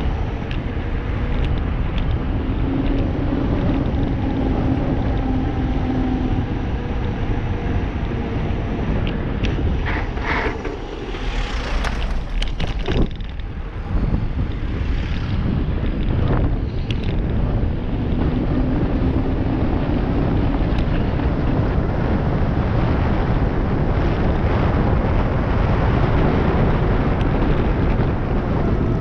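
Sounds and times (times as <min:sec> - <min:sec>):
tyres rolling on asphalt: 0:00.0 - 0:29.0
wind buffeting microphone: 0:00.0 - 0:29.0.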